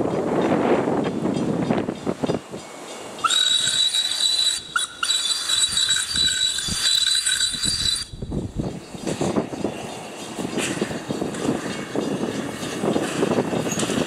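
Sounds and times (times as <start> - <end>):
shrill steam whistle: 3.2 - 8.4.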